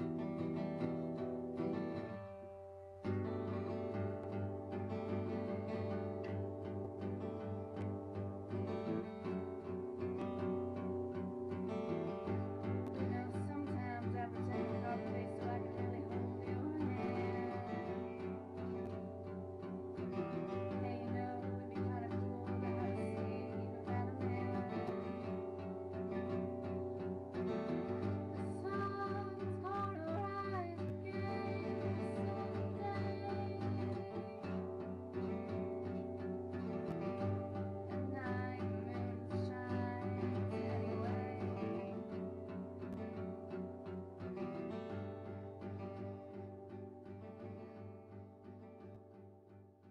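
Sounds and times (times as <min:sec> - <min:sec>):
acoustic guitar music: 0:00.0 - 0:49.9
song with plucked strings: 0:00.0 - 0:49.9
person singing: 0:11.1 - 0:42.9.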